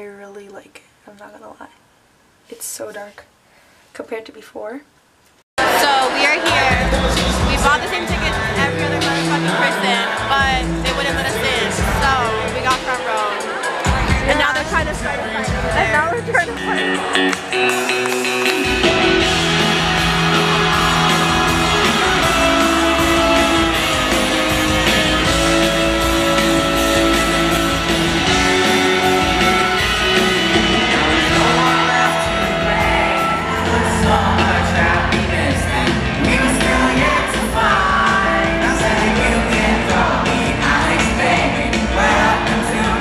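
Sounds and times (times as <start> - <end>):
live band with singer: 5.6 - 43.0
audience shouts and whoops: 16.6 - 39.2.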